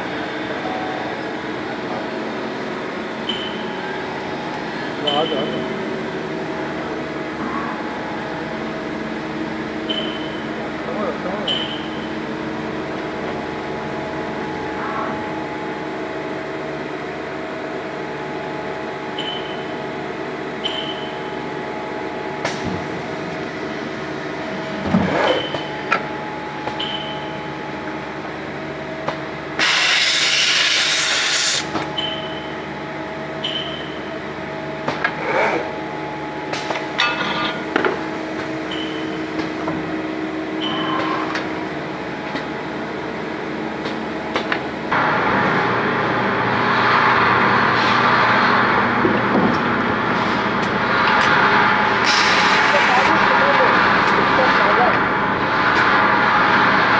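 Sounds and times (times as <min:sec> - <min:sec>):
machine hum: 0:00.0 - 0:56.9
loud air hiss: 0:29.6 - 0:31.7.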